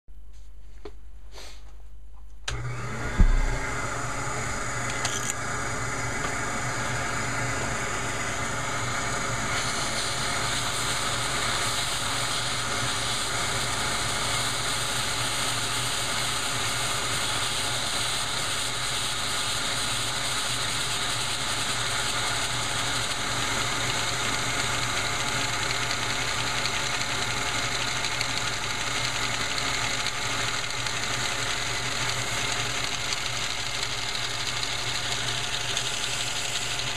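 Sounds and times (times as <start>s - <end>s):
shop vacuum motor running: 2.5s - 36.9s.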